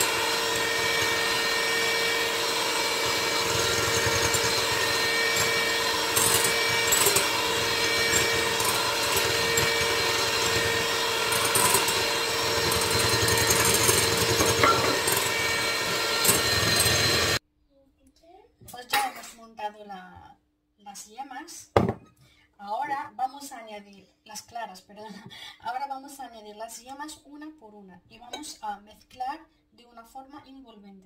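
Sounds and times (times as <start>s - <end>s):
electric hand mixer whipping: 0.0s - 17.4s.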